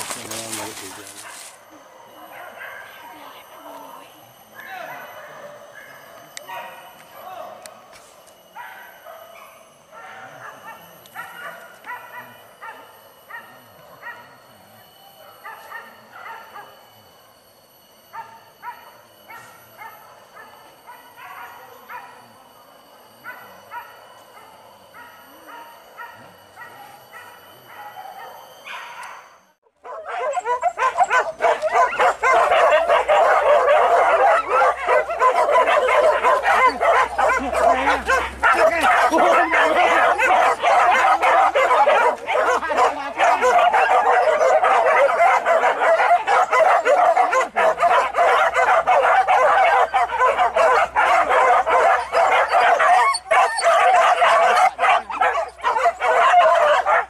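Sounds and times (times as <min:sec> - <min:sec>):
dogs barking and yelping: 0:00.0 - 0:07.0, 0:07.8 - 0:14.4, 0:15.2 - 0:16.8, 0:18.1 - 0:22.3, 0:23.2 - 0:57.0
faint steady high tones: 0:00.0 - 0:57.0
dog yipping: 0:29.9 - 0:57.0.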